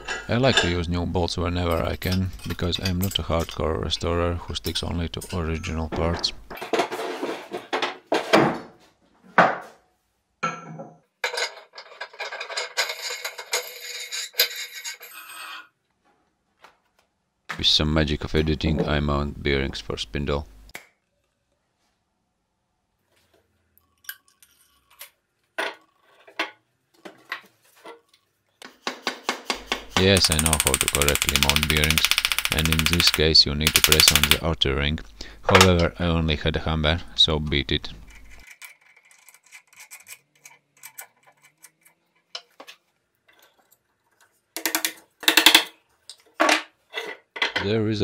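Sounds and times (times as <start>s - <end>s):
metal parts clinking and knocking: 1.7s - 3.6s, 11.2s - 15.4s, 29.6s - 34.4s, 38.0s - 42.6s, 44.6s - 47.6s
hammer tapping: 28.8s - 34.4s.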